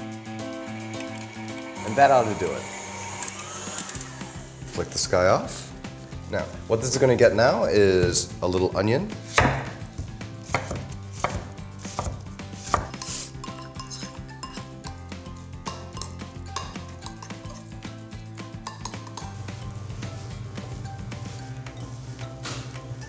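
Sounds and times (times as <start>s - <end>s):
knife chopping on cutting board: 9.3s - 13.1s.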